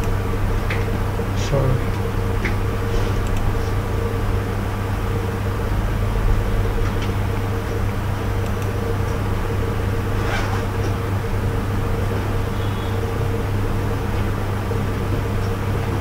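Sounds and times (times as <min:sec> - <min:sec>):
machine hum: 0:00.0 - 0:16.0
faint clicks: 0:03.2 - 0:03.5.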